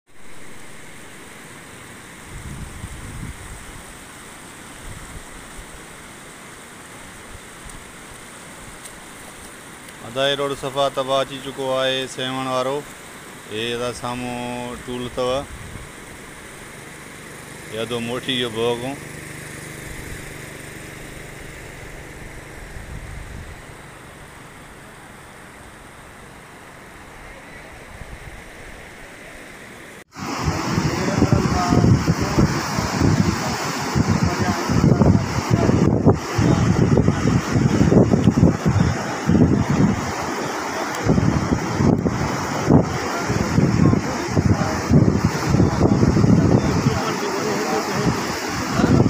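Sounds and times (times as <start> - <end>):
floodwater rushing: 0.1 - 49.0
wind buffeting microphone: 2.3 - 4.0, 15.3 - 17.6, 19.2 - 24.6, 30.2 - 49.0
low engine hum: 15.5 - 27.9.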